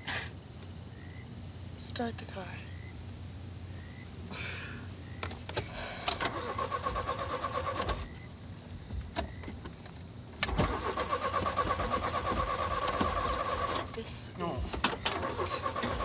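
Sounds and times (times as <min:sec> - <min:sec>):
starter motor cranking engine: 0:06.0 - 0:08.1, 0:10.4 - 0:14.0, 0:14.7 - 0:16.0.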